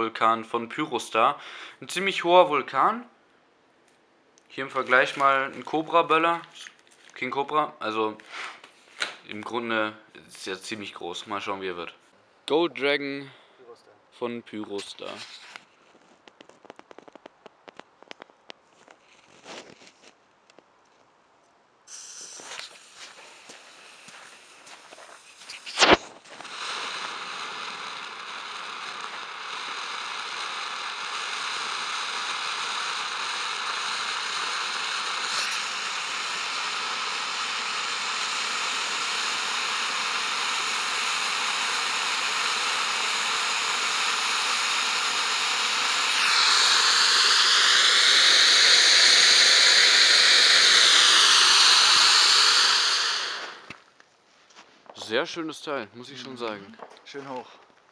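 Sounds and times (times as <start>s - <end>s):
firework fountain hissing: 21.9s - 53.9s
sharp pop: 25.4s - 27.1s, 35.2s - 35.8s.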